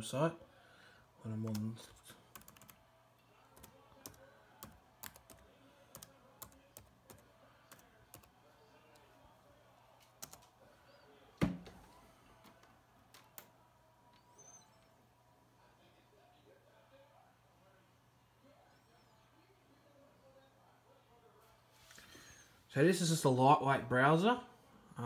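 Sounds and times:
faint low hum: 0:00.0 - 0:22.8
laptop keyboard typing: 0:01.4 - 0:02.8, 0:03.4 - 0:09.1, 0:10.0 - 0:10.5.

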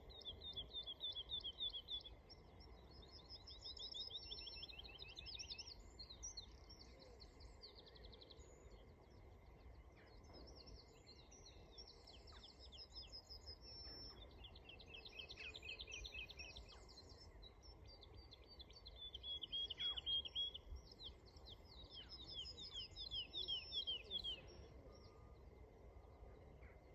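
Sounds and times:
woodlark singing: 0:10.2 - 0:25.4.

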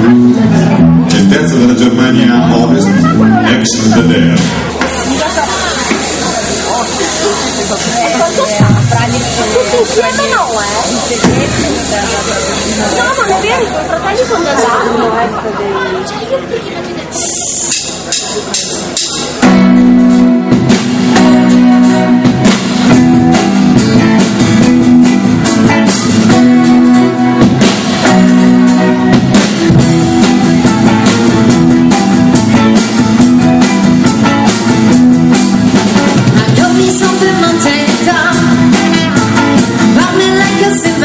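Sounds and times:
drum kit beat: 0:00.0 - 0:14.6, 0:17.0 - 0:41.0
electric guitars: 0:00.0 - 0:41.0
person singing: 0:36.2 - 0:41.0.

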